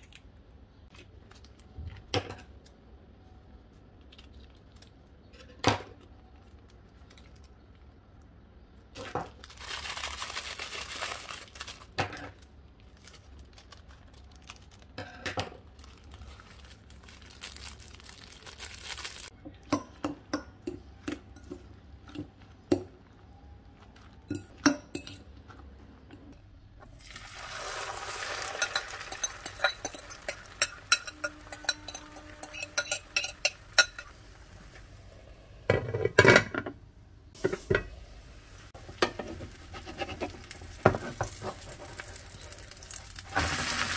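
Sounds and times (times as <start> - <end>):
food sizzling in frying pan: 27.0 - 35.0, 37.4 - 43.9
fork clinking against glass bowl: 28.6 - 34.1.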